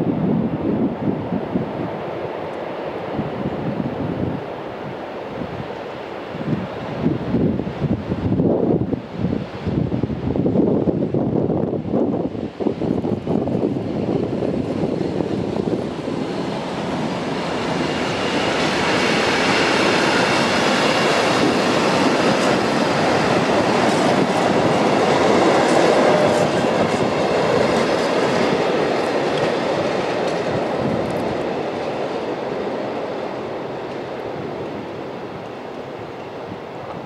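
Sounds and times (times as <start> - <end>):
freight train wheels clattering: 13.0 - 34.8.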